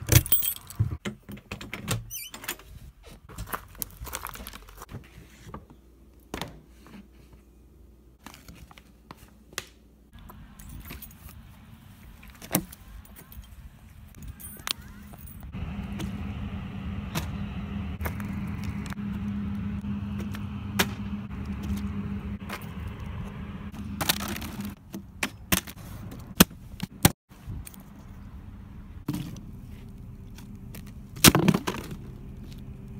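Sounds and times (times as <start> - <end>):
steady low hum: 15.2 - 24.8
plastic bottle landing on asphalt: 31.2 - 32.0.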